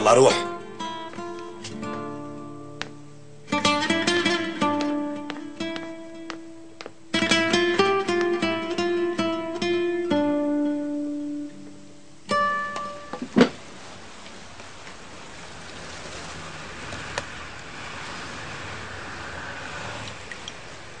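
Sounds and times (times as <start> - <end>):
plucked guitar notes: 0.0 - 13.6
soft steady hiss: 0.0 - 21.0.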